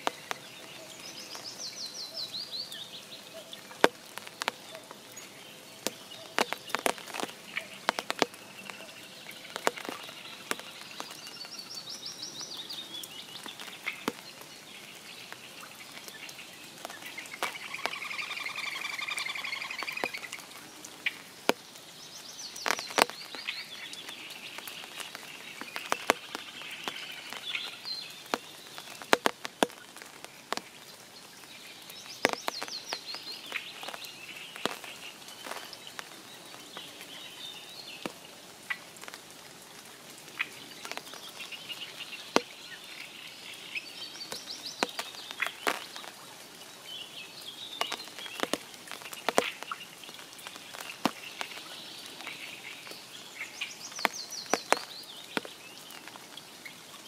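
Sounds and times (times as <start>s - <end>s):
rain pattering in a forest: 0.0s - 57.0s
songbirds singing: 0.0s - 57.0s.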